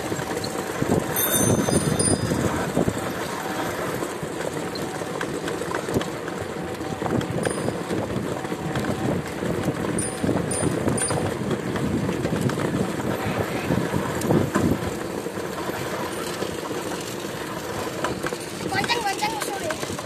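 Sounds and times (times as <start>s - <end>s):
wind buffeting microphone: 0.0s - 4.0s, 5.9s - 15.9s
road noise rumble: 0.0s - 20.0s.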